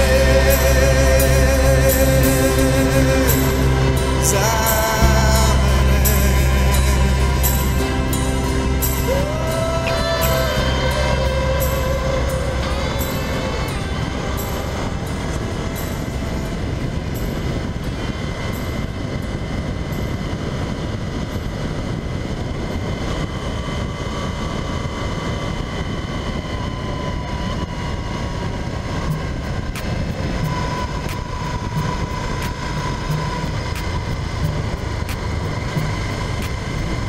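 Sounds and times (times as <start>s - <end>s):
wind rushing: 0.0s - 37.0s
motorcycle engine running: 29.1s - 37.0s.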